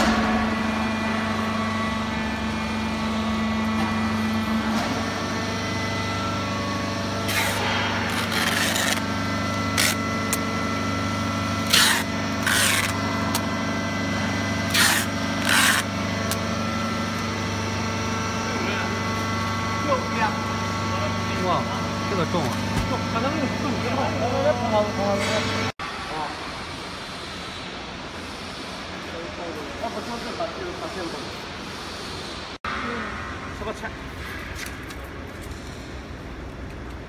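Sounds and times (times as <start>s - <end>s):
workshop machinery humming: 0.0s - 37.0s
packing tape ripping: 7.2s - 10.4s, 11.6s - 13.4s, 14.7s - 16.4s.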